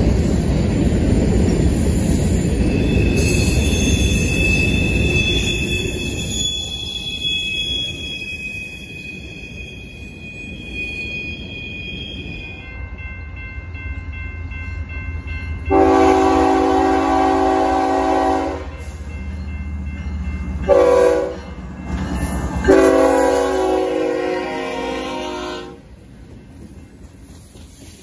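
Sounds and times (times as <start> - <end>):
locomotive air horn: 15.7 - 18.8, 20.7 - 21.5, 22.6 - 25.8.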